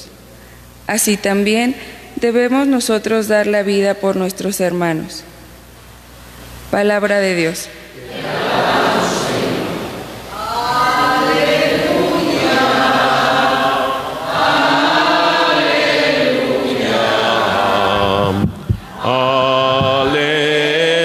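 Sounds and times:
slow liturgical chant: 7.9s - 21.0s.

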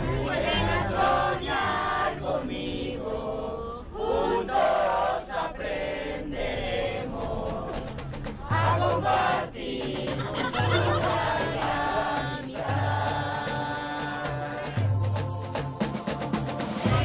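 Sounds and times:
group chanting and singing: 0.0s - 17.0s
low beat: 7.0s - 17.0s.

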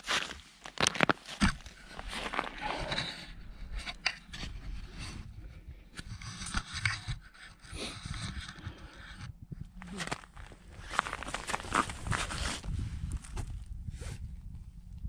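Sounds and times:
camera scraping and knocking: 0.8s - 13.6s
boots crunching on snow: 9.9s - 13.6s.

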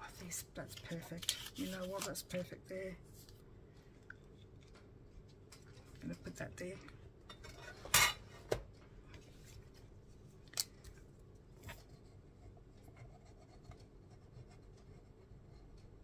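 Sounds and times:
light handling of craft supplies: 0.1s - 12.1s
paper rustling: 0.7s - 2.4s.

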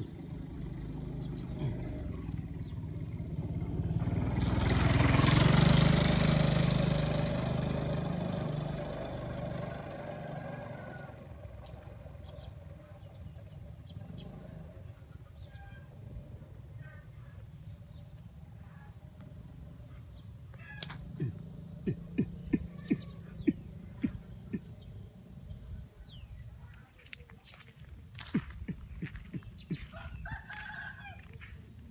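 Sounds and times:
small birds chirping: 0.0s - 3.8s, 11.6s - 15.9s, 16.7s - 31.9s
chicken clucking: 20.7s - 24.8s, 28.2s - 31.4s.

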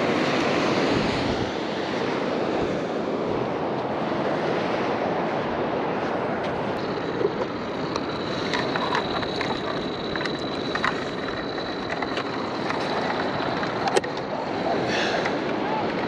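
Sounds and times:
surf wash: 0.0s - 16.0s
wind on microphone: 0.0s - 16.0s
thin high tone: 6.7s - 14.9s.

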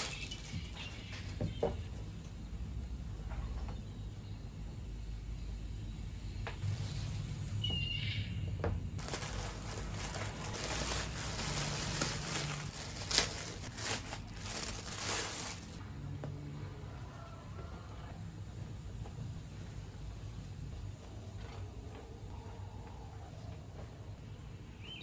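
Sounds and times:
plastic packaging crinkling: 0.0s - 1.0s, 9.0s - 15.8s.

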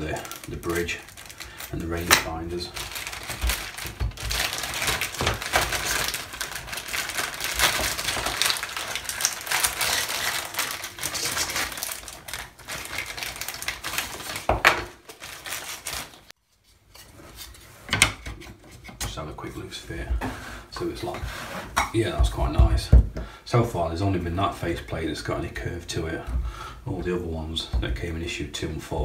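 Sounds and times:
plastic bag crinkling: 0.0s - 16.3s.

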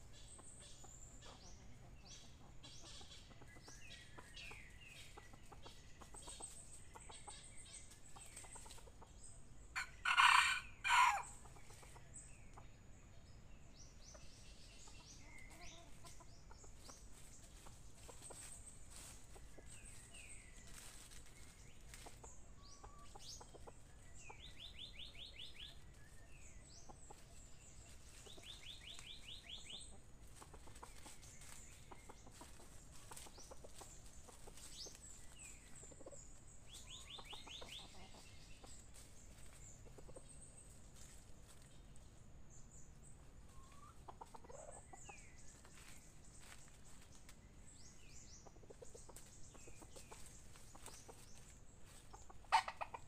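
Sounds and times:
rustling in dry leaves: 4.7s - 12.0s, 15.4s - 24.0s, 25.3s - 42.2s, 42.9s - 53.0s
junglefowl clucking calls: 9.8s - 12.2s, 43.5s - 45.1s, 52.0s - 53.0s.

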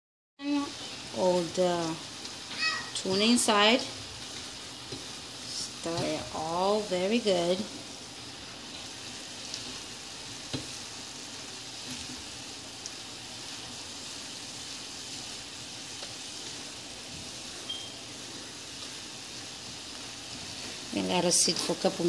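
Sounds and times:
food sizzling in a frying pan: 0.4s - 22.0s
spatula tapping pan: 2.2s - 6.5s, 9.5s - 10.9s.

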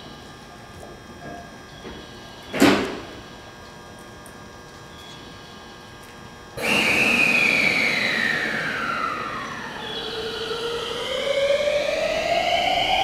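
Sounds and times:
electric train motor whine: 5.2s - 13.0s
rising motor tone: 6.6s - 13.0s.

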